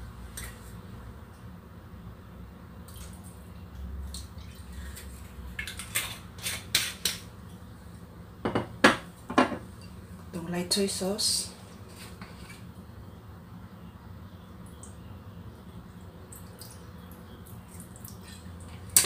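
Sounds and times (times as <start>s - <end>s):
knocks on countertop: 8.4s - 9.6s.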